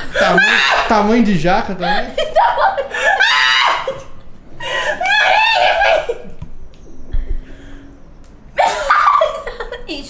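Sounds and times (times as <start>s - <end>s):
young woman laughing: 1.8s - 6.4s, 8.6s - 10.0s.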